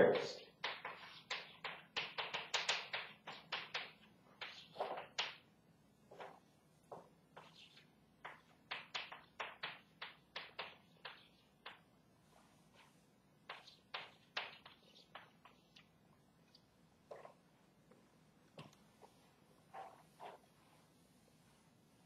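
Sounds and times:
chalk tapping on a chalkboard: 0:00.2 - 0:05.4, 0:06.2 - 0:11.8, 0:12.8 - 0:15.9.

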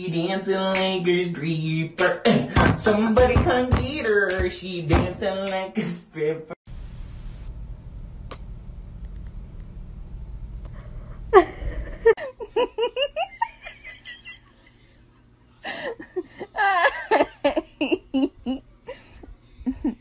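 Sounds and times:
low steady rumble: 0:06.7 - 0:16.4
person laughing hard: 0:11.3 - 0:15.0, 0:15.6 - 0:20.0.

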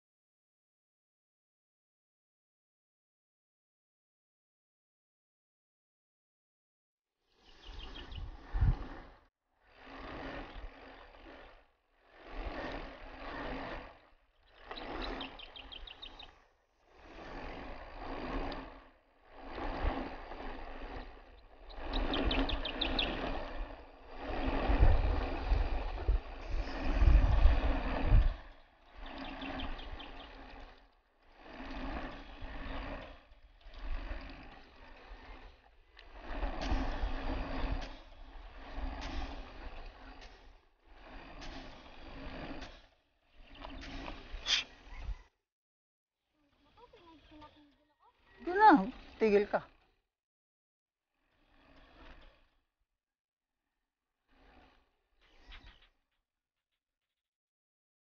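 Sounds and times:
bike tyres and drivetrain rattling: 0:17.0 - 0:30.8.

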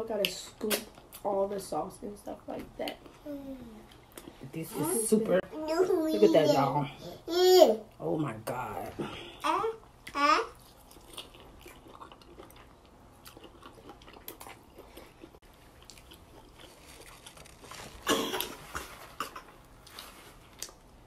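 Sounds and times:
people chewing and lip smacking: 0:03.8 - 0:04.4, 0:09.9 - 0:20.9.

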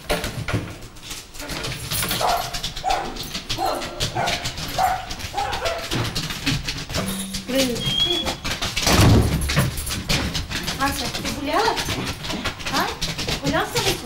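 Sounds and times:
small dog yapping: 0:02.2 - 0:06.0.

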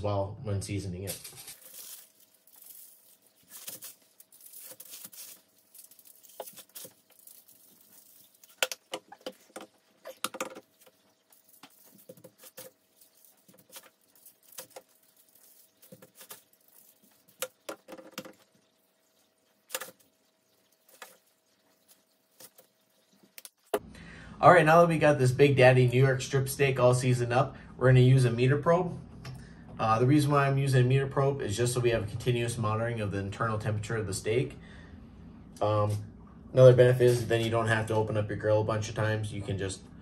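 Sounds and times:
granules pattering on foil: 0:01.1 - 0:18.4
shaker bottles rattling: 0:01.1 - 0:18.5, 0:19.7 - 0:20.1, 0:20.7 - 0:22.8.

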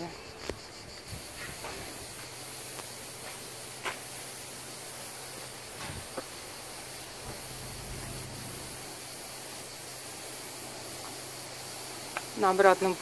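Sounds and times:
outdoor background hiss: 0:00.0 - 0:13.0
faint low hum: 0:05.6 - 0:09.0.

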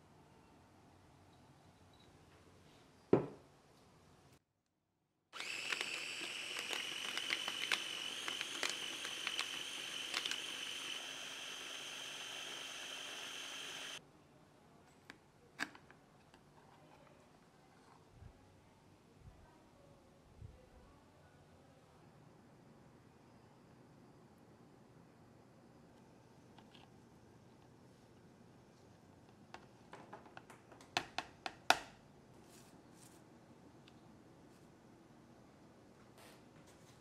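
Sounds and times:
food processor motor whine: 0:05.4 - 0:14.0.

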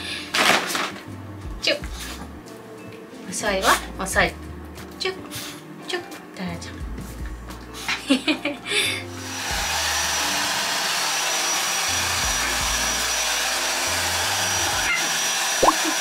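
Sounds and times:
hair dryer blowing: 0:09.0 - 0:16.0.

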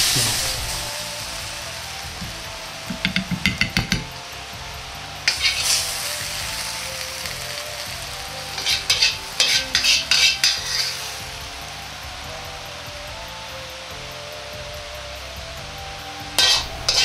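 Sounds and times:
stir-fry sizzling: 0:00.0 - 0:17.0
metal ladle scraping wok: 0:05.3 - 0:11.3, 0:16.4 - 0:17.0.

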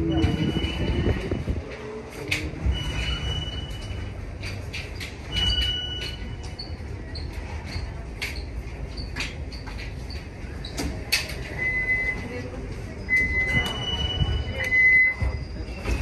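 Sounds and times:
wheels squealing on rail: 0:00.0 - 0:01.6, 0:02.6 - 0:04.3, 0:11.5 - 0:16.0.

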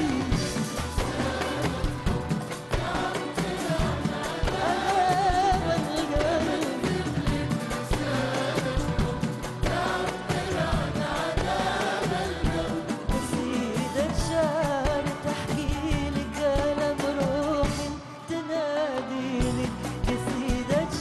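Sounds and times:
hand percussion: 0:00.0 - 0:18.0, 0:19.4 - 0:21.0
orchestra strings: 0:00.0 - 0:21.0.

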